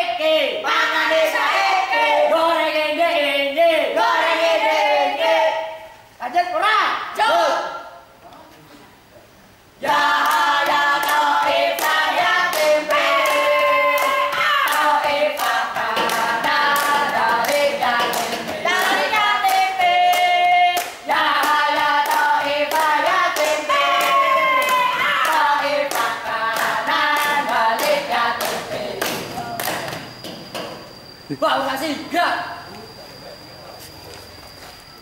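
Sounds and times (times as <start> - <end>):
group of voices chanting: 9.8 - 30.0
hands clapping rhythmically: 9.8 - 30.1.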